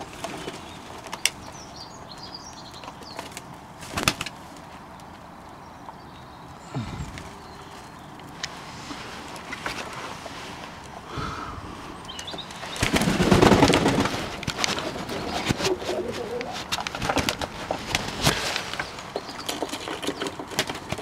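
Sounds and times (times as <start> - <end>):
wings flapping: 3.2 - 4.7, 12.5 - 21.0
doves cooing: 6.5 - 9.7, 11.0 - 17.8.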